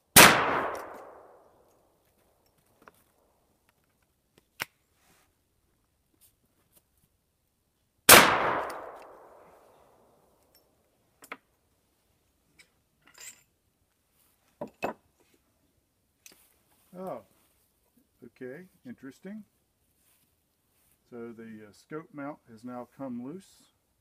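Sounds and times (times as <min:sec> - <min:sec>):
rifle gunshot: 0:00.1 - 0:01.4, 0:08.1 - 0:09.4.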